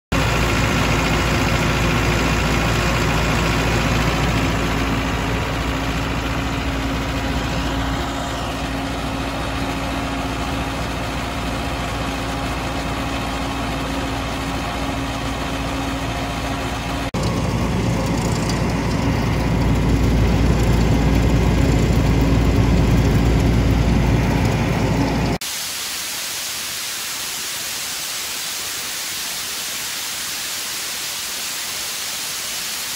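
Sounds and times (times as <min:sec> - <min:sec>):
air compressor diesel engine idling: 0:00.1 - 0:25.4
steady hiss: 0:25.4 - 0:32.9.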